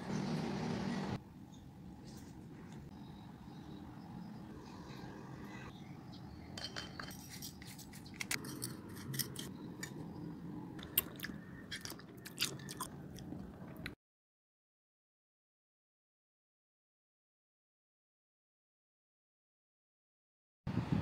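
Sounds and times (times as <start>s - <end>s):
mango slices crunching in glass bowl: 10.8s - 13.3s.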